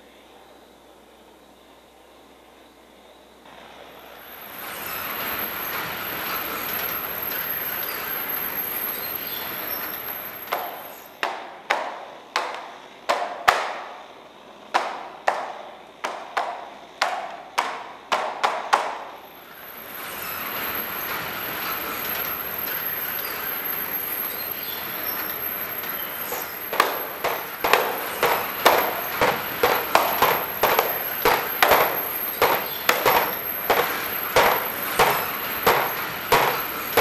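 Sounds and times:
sharp ringing strikes: 19.2 - 37.0
steady rushing noise: 25.3 - 37.0.

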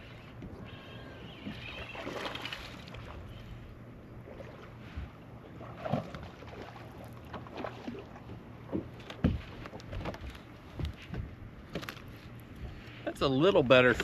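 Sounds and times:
water noise: 0.0 - 10.7
boat engine low hum: 0.0 - 14.0
wind: 0.0 - 14.0.

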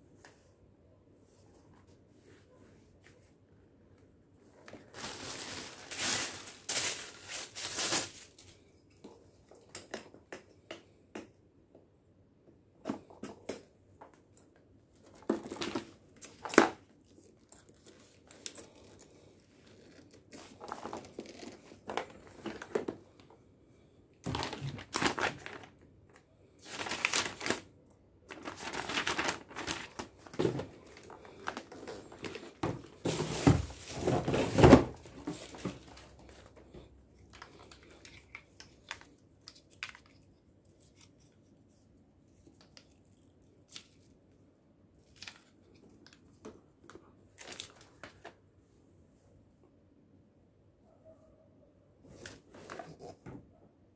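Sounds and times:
plastic parts rustling and scraping: 4.5 - 9.6, 14.9 - 23.4, 24.2 - 27.7, 28.3 - 41.8.

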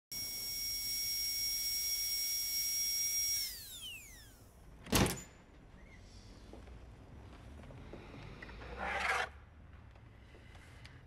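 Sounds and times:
three d printer whine: 0.1 - 4.6.

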